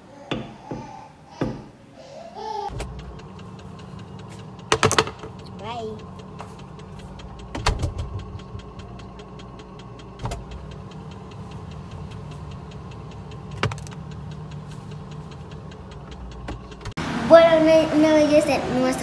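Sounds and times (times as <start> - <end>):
refrigerator humming: 0.0 - 19.0
faint ticking: 2.7 - 17.0.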